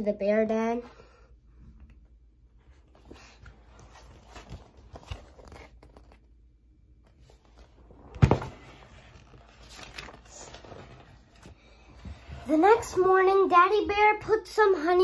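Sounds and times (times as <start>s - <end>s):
paper pages turning: 2.9s - 6.4s, 7.0s - 13.1s.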